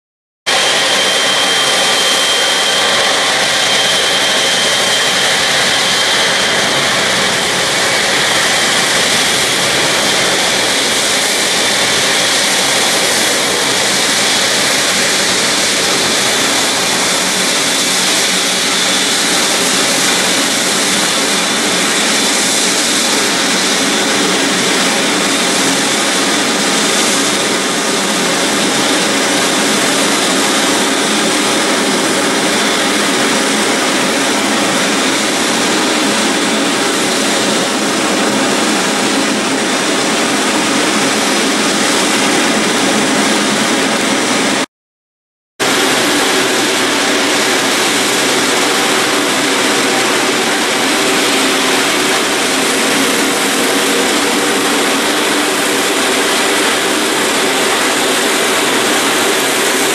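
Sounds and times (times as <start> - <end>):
jet engine whine: 0.5 - 44.7, 45.6 - 59.9.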